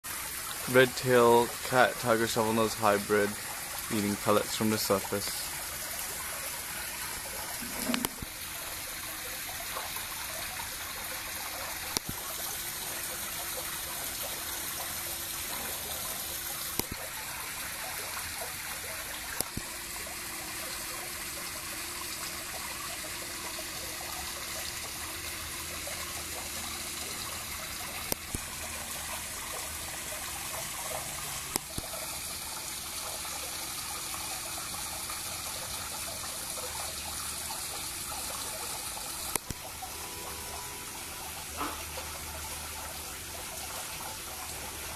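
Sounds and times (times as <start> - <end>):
trickling water in pond: 0.0 - 44.9
fish splashing at surface: 6.4 - 10.0.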